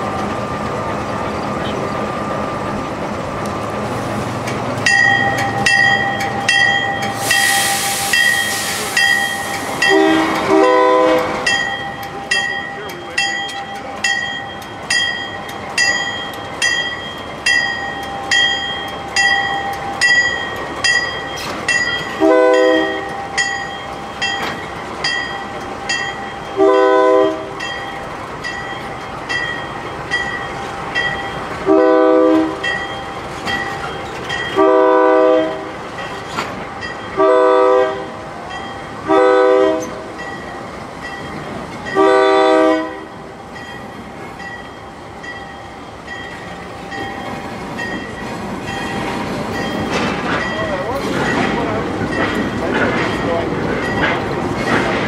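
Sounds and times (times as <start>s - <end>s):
locomotive bell ringing: 4.8s - 55.0s
locomotive air horn blasts: 9.8s - 11.5s, 22.2s - 23.1s, 26.6s - 27.5s, 31.7s - 32.6s, 34.6s - 35.7s, 37.2s - 38.1s, 39.1s - 40.0s, 42.0s - 43.1s.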